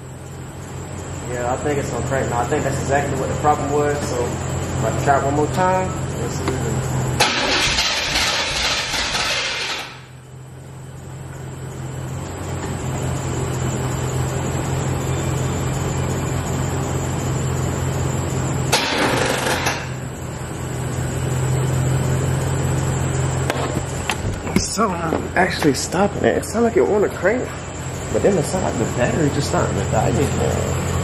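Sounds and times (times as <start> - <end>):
steady low hum: 0.0 - 31.0
car engine cranking: 3.4 - 10.1, 18.7 - 20.1.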